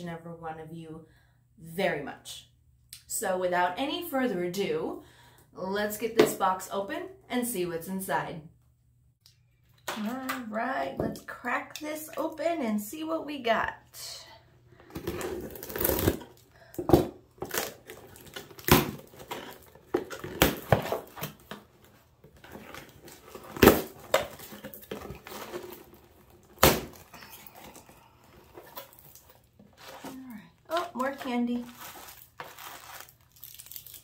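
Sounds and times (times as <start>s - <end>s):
tape and cardboard crackling: 14.8s - 34.0s.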